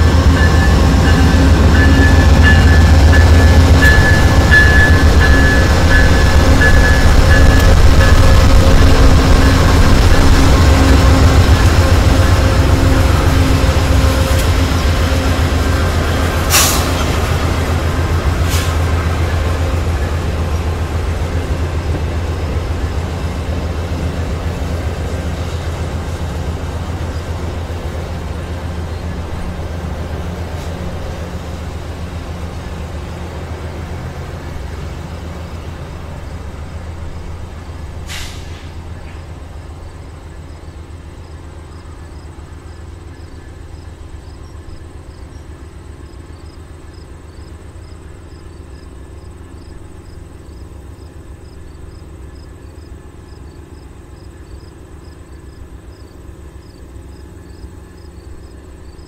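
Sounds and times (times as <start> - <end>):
diesel locomotive engines droning: 0.0 - 59.0
train coaches rumbling on rails: 0.0 - 59.0.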